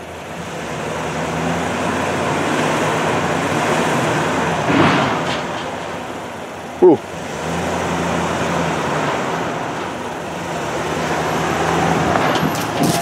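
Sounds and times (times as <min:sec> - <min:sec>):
truck engine running at low speed: 0:00.0 - 0:13.0
tyres crunching over stones: 0:11.7 - 0:13.0.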